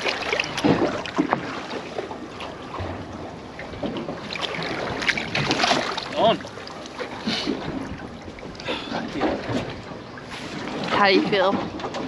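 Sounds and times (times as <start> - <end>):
water lapping against boat: 0.0 - 12.0
short splashes: 4.2 - 11.7.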